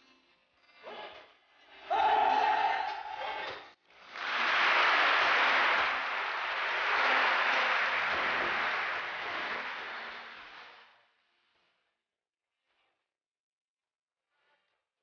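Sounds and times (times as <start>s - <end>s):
audience applauding: 4.0s - 10.9s.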